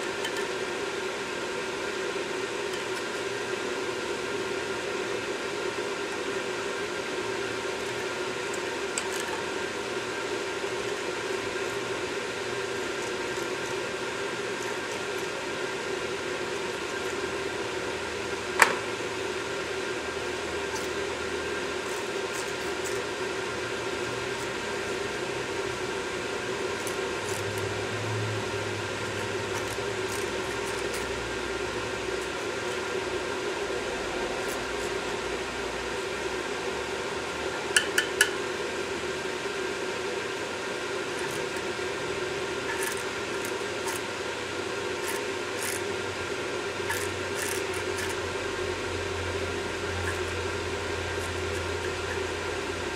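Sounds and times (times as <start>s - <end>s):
metal pick scraping metal: 0.0s - 0.7s, 2.6s - 3.3s, 7.8s - 17.8s, 20.2s - 36.3s, 37.7s - 38.4s, 41.0s - 46.0s, 46.7s - 52.9s
steady background hum: 0.0s - 52.9s.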